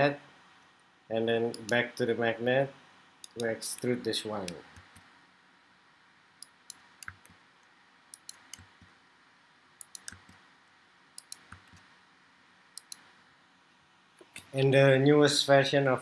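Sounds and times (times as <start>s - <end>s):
computer mouse and keyboard clicks: 6.4s - 7.4s, 8.2s - 9.0s, 9.8s - 10.4s, 11.2s - 11.9s, 12.8s - 13.1s.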